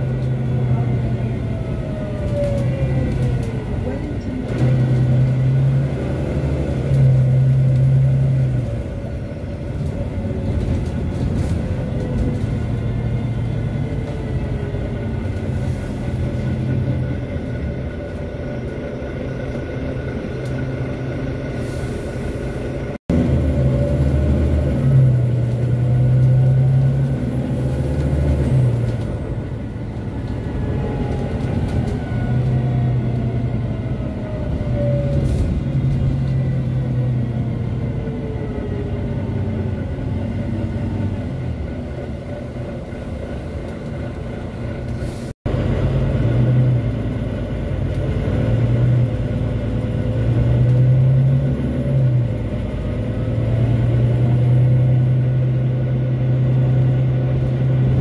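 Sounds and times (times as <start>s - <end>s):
bus diesel engine droning: 0.0s - 58.0s
road rumble: 0.0s - 58.0s.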